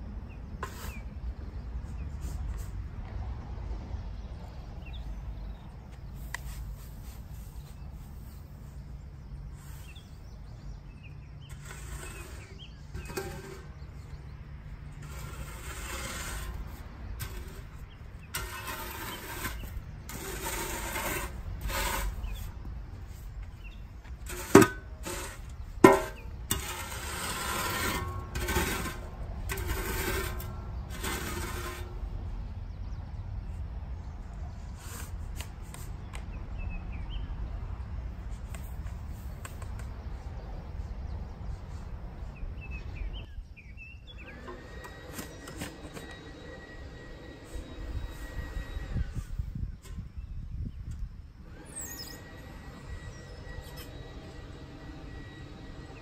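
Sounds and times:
shovel scraping compost: 0.4 - 3.0, 5.8 - 32.3, 34.6 - 36.1, 44.1 - 50.4, 51.4 - 56.0.

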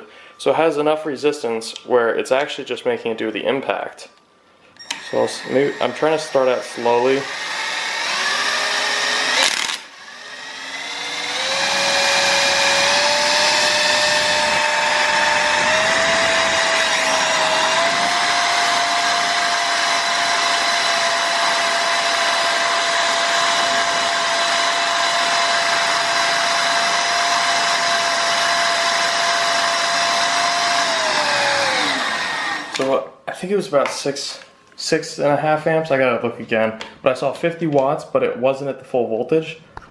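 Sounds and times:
motor whine: 4.8 - 32.8.

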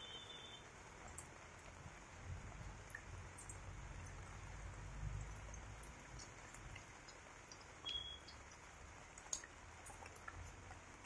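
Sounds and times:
faint light rain dripping: 0.0 - 11.0
high beep: 7.9 - 8.3.

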